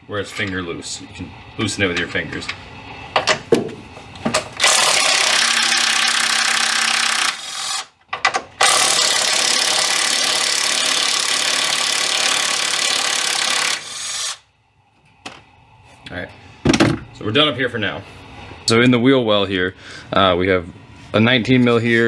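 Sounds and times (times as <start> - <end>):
cordless impact gun running: 4.6 - 7.9, 8.6 - 14.4.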